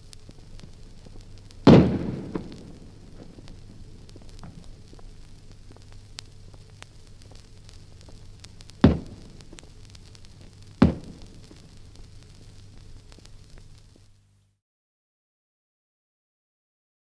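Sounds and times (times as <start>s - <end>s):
record surface noise: 0.0s - 14.6s
cannon booms: 1.6s - 4.7s, 8.8s - 9.6s, 10.8s - 11.6s.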